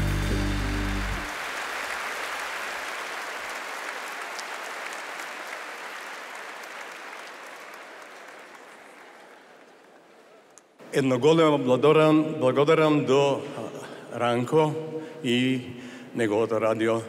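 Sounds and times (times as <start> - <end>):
band music: 0.0 - 1.3
large audience applauding: 0.0 - 10.5.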